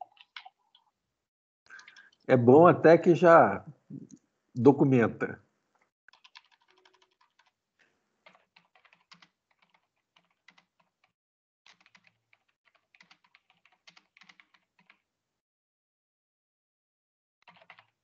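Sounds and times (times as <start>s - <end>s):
rapid keyboard typing: 1.7s - 2.2s, 6.1s - 7.6s, 8.2s - 15.0s, 17.4s - 18.0s.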